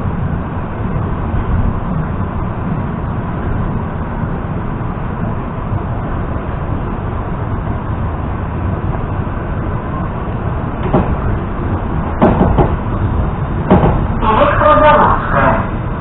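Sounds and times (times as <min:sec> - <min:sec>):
train rumble and hiss: 0:00.0 - 0:16.0
sharp knocks: 0:10.8 - 0:11.3, 0:12.1 - 0:12.9, 0:13.6 - 0:14.2.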